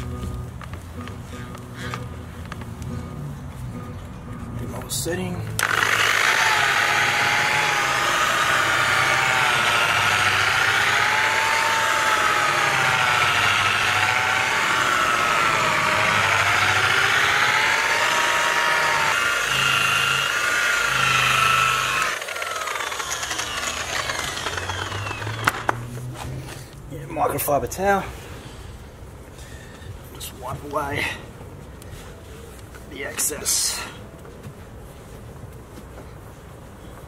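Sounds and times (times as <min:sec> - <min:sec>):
electric polisher motor whine: 0:05.6 - 0:26.3.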